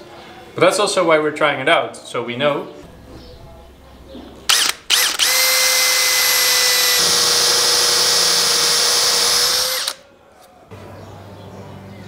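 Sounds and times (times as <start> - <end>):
cordless drill whining: 4.5 - 10.0.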